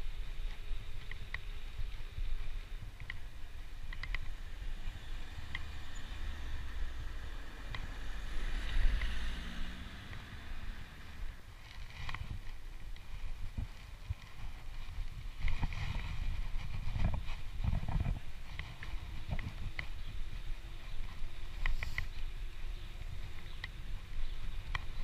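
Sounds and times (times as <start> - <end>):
wind rumbling on microphone: 0.0 - 25.0
bicycle clicks and rattles: 0.2 - 6.0, 11.5 - 25.0.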